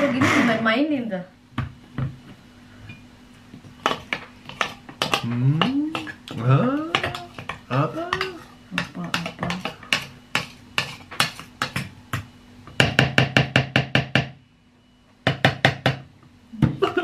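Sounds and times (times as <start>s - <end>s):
spoon scraping glass bowl: 7.0s - 11.7s.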